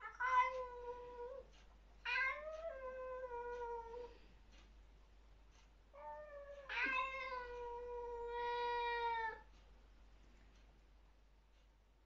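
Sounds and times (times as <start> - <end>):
cat yowling: 6.0 - 9.4.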